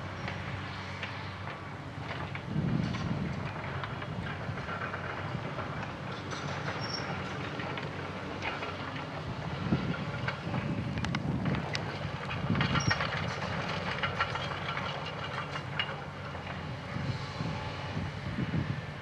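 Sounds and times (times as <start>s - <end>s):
diesel engine running: 0.0s - 19.0s
track links clattering: 1.0s - 16.7s
brief squeaks: 6.4s - 7.3s
metal clanks: 9.8s - 16.6s.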